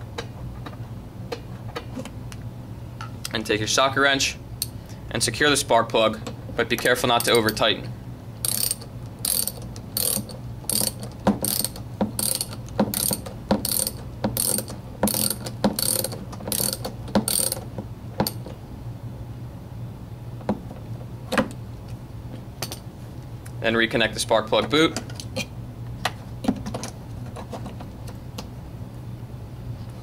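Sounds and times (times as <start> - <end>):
ratchet wrench clicking: 7.2 - 7.6, 8.4 - 17.6.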